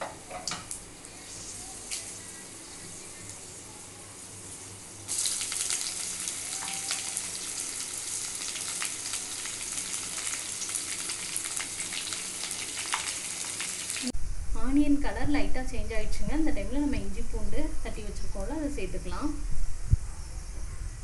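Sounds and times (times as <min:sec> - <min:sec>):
onions sizzling and crackling: 0:00.0 - 0:14.2
spices frying in ghee: 0:00.2 - 0:14.2.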